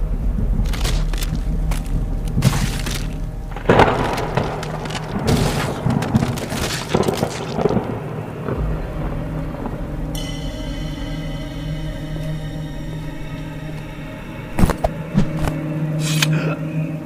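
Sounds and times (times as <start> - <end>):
rain hiss: 0.0 - 14.4
thunder cracks and rumbles: 0.0 - 14.5
music drone of held tones: 7.6 - 17.0.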